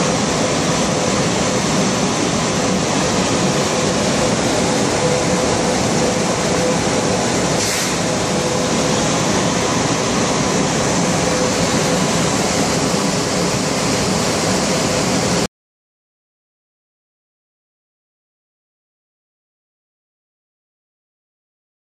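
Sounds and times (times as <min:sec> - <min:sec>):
loud steady rushing noise: 0:00.0 - 0:15.5
short hiss: 0:07.6 - 0:08.1.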